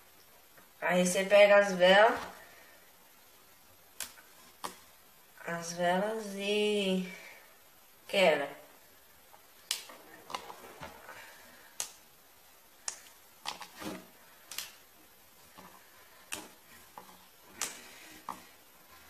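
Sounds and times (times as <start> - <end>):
wax candles snapping: 3.9 - 4.8, 9.6 - 11.0, 11.6 - 12.1, 12.8 - 14.9, 15.5 - 18.5.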